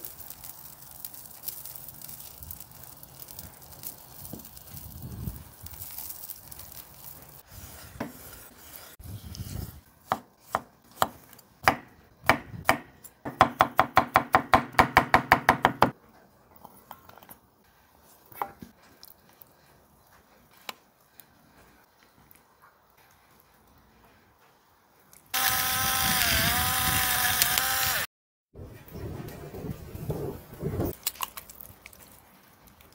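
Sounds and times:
knife chopping on wooden board: 10.1 - 15.9.

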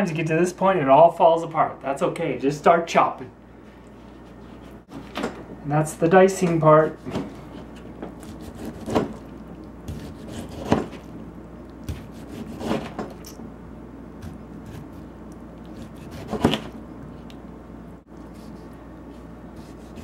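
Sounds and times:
faint steady hum: 0.0 - 20.0
knife chopping on cutting board: 8.1 - 9.2, 9.9 - 11.0, 11.9 - 13.1, 15.8 - 16.7.

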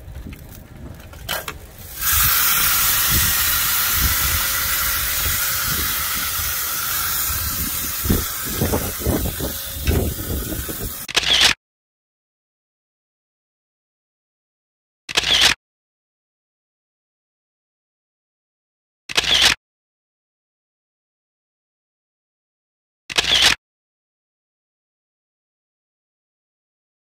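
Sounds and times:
loud steady hiss: 1.8 - 11.1.

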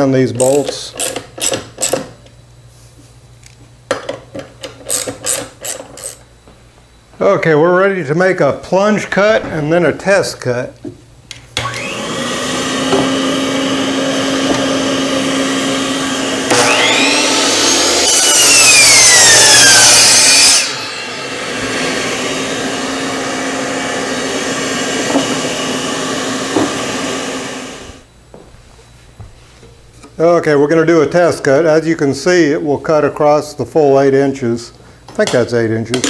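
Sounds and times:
miter saw cutting wood: 11.6 - 28.0
vacuum cleaner running: 11.6 - 28.1.

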